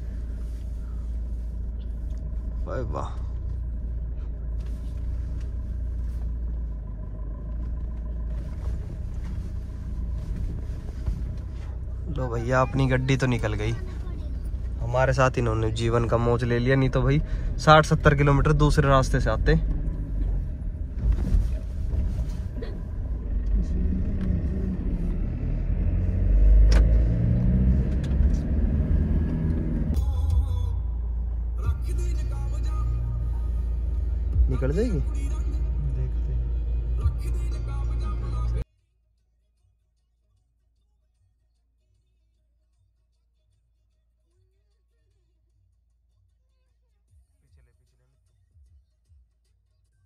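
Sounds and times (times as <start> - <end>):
car rumbling over dirt road: 0.0 - 38.6.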